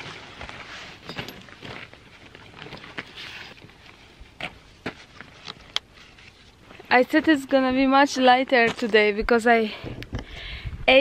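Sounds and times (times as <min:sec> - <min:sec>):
backpack rustling: 0:00.0 - 0:07.6.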